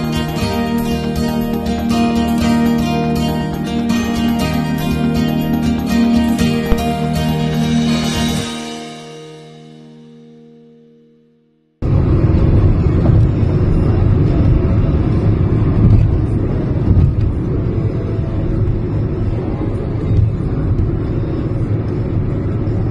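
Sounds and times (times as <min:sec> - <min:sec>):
car cabin road rumble: 0:00.0 - 0:08.4, 0:11.8 - 0:22.9.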